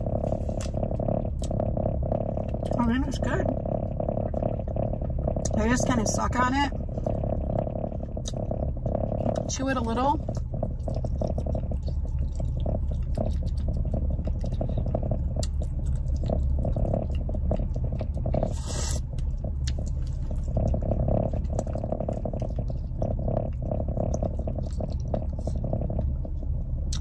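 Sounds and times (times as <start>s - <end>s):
person chewing: 0.0s - 1.6s, 10.3s - 27.0s
low hum: 0.0s - 27.0s.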